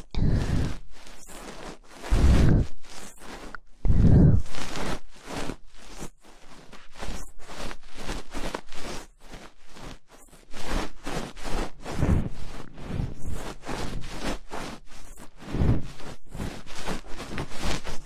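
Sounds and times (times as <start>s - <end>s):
rustling handling noise on microphone: 0.0s - 18.0s.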